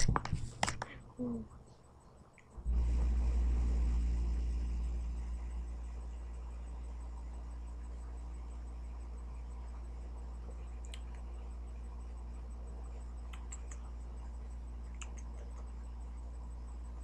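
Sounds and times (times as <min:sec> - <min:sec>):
low electrical hum: 0:00.0 - 0:17.0
faint clicks: 0:13.2 - 0:13.9, 0:14.9 - 0:15.7.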